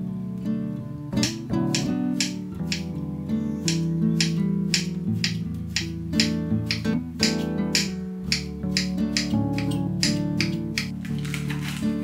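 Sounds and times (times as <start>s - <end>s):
plucked acoustic guitar: 0.0s - 12.0s
light clicking beat: 1.2s - 3.0s, 3.6s - 11.0s.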